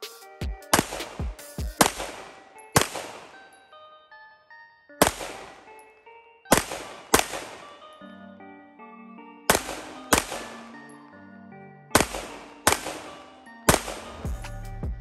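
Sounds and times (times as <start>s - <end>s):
background music with held notes: 0.0s - 15.0s
pistol shots: 0.7s - 3.6s, 5.0s - 5.8s, 6.5s - 8.0s, 9.5s - 11.0s, 11.9s - 14.2s.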